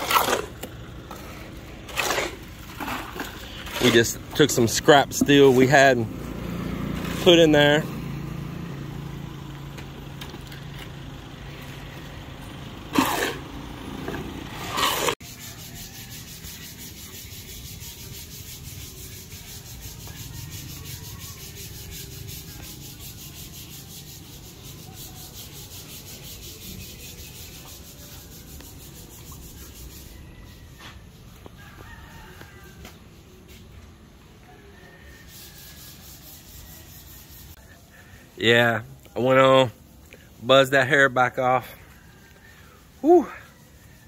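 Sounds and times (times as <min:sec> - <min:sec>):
sandpaper rubbing painted surface: 0:14.5 - 0:31.2, 0:34.8 - 0:37.7.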